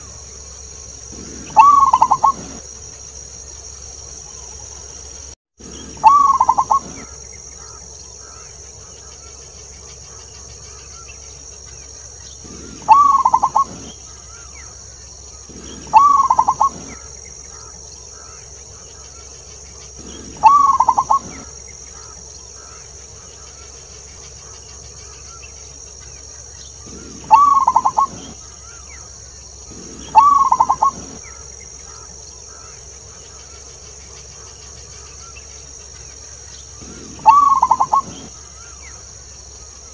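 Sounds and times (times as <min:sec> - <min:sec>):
steady high hiss: 0:00.0 - 0:39.9
dove cooing: 0:01.1 - 0:02.6, 0:05.7 - 0:08.5, 0:12.4 - 0:14.5, 0:15.3 - 0:18.4, 0:19.9 - 0:22.8, 0:26.8 - 0:28.8, 0:29.7 - 0:32.6, 0:36.8 - 0:38.7.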